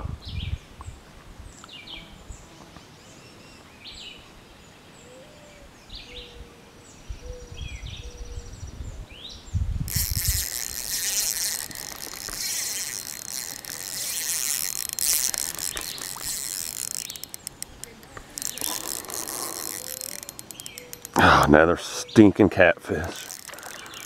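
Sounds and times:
fishing reel gears whirring: 0:09.9 - 0:21.5, 0:23.1 - 0:24.0
reel clicks: 0:09.9 - 0:21.6, 0:23.0 - 0:24.0.

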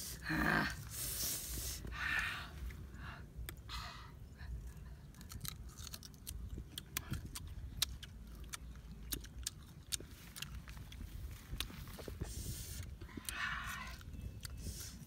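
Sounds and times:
wet chewing clicks: 0:05.0 - 0:15.0
person biting crunchy fruit: 0:05.1 - 0:15.0.

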